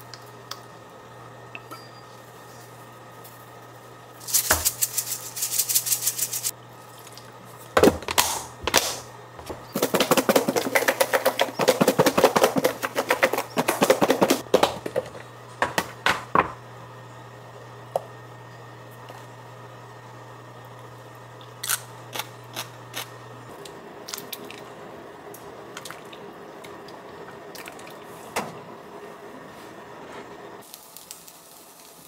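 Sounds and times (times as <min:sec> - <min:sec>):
container shaken with liquid sloshing: 0:04.2 - 0:06.5, 0:09.7 - 0:15.0
seasoning shaker rattling: 0:04.2 - 0:06.5, 0:09.7 - 0:14.4.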